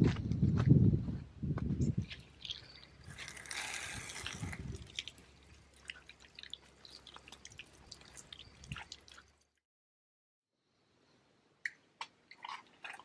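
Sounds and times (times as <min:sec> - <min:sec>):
wooden pole squelching in grape must: 0:02.2 - 0:09.3.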